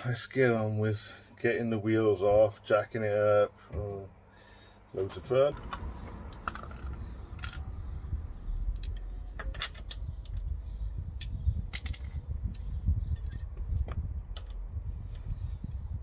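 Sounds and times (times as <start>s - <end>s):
metal wheel parts clinking: 8.7s - 10.5s, 11.1s - 12.3s.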